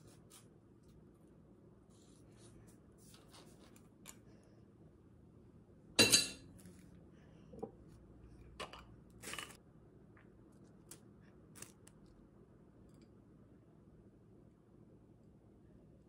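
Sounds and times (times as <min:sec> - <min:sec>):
kitchen clinks and knocks: 0:06.0 - 0:06.5.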